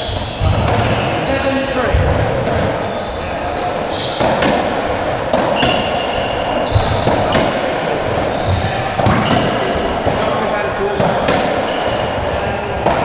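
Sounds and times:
shoes squeaking on wooden floor: 0.0s - 4.5s, 5.4s - 7.5s, 8.2s - 10.3s.

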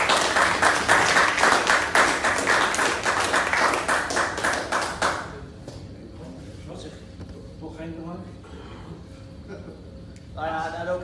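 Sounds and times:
people applauding: 0.0s - 5.4s.

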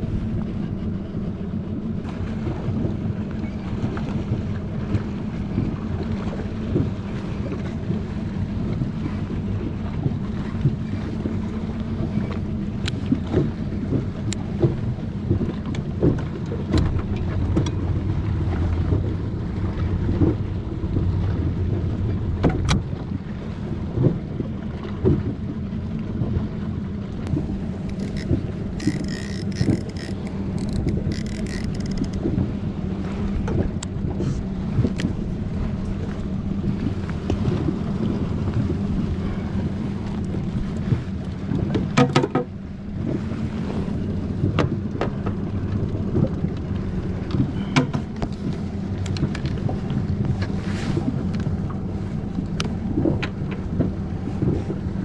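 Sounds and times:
boat engine humming: 0.0s - 55.0s
gear knocking and clicking: 27.8s - 32.3s.

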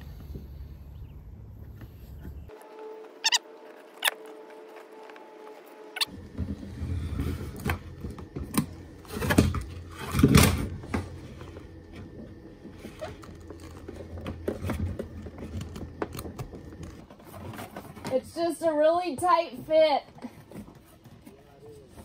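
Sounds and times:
wire rustling and scraping: 2.5s - 18.5s.

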